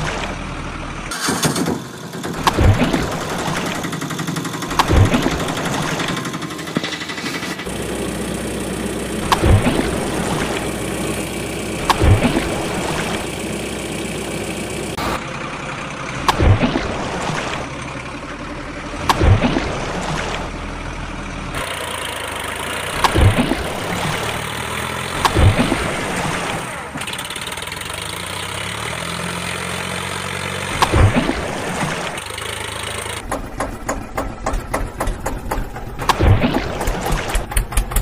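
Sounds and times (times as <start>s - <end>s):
engine running with surges: 0.0s - 38.0s.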